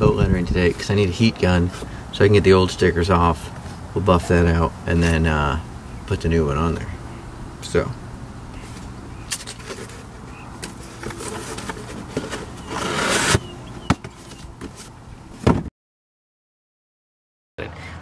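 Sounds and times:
cardboard flaps rustling: 9.5 - 15.7
box cutter slitting cardboard: 11.0 - 13.5.

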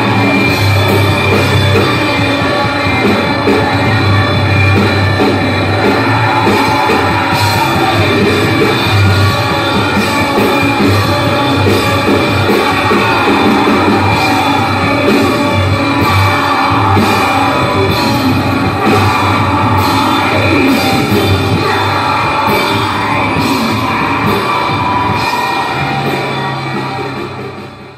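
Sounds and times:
drums and cymbals: 0.0 - 27.9
live rock band playing: 0.0 - 27.9
pulsing bass: 0.0 - 27.9.

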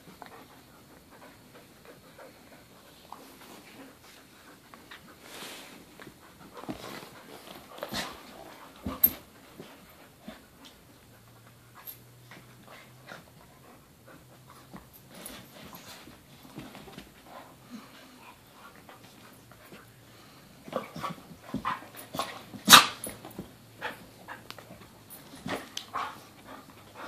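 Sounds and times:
dogs scuffling: 3.1 - 11.0, 20.6 - 27.0.

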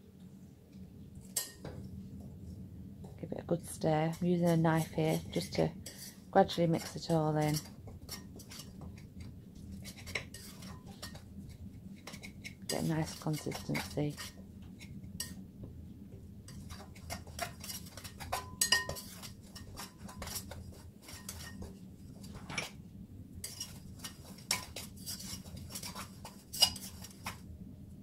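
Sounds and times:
knife scraping ceramic bowl: 3.8 - 15.4, 16.5 - 22.7, 23.4 - 27.4
knife clinking on bowl: 16.5 - 20.5.

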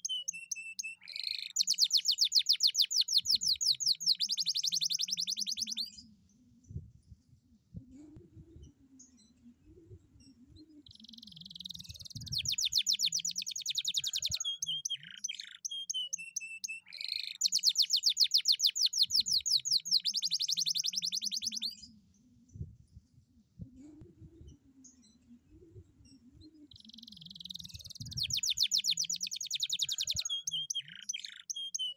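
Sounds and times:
canary singing trills: 0.0 - 6.1, 10.2 - 22.0, 26.0 - 31.9.

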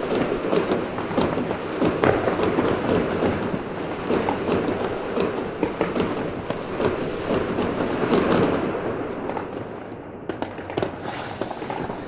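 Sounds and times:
fireworks and firecrackers crackling: 0.0 - 12.0
sharp firework bang: 10.8 - 12.0.

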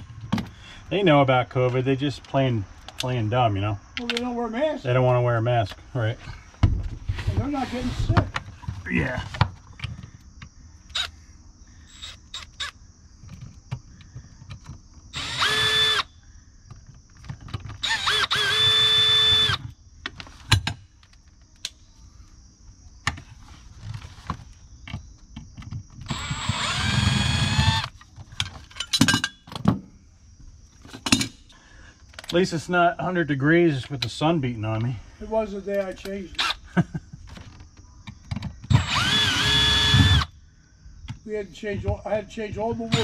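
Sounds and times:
cordless driver motor whine: 15.2 - 16.1, 17.8 - 19.6, 26.1 - 27.9, 38.7 - 40.3.

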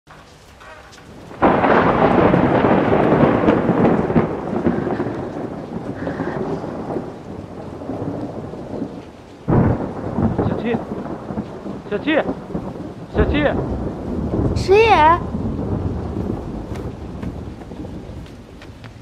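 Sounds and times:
rain falling: 0.1 - 19.0
thunderclap rumbling: 0.1 - 19.0.

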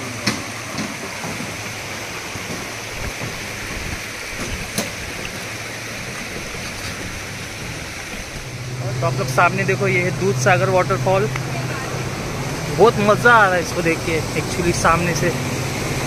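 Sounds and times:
river water rushing: 0.0 - 16.0.

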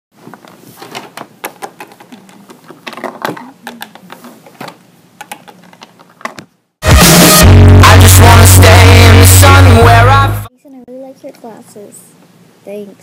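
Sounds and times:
objects clicking on wooden tabletop: 0.9 - 6.5.

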